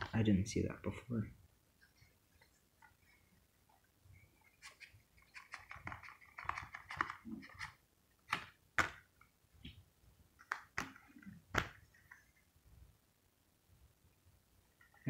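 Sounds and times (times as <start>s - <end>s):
paper rustling: 4.5s - 8.5s.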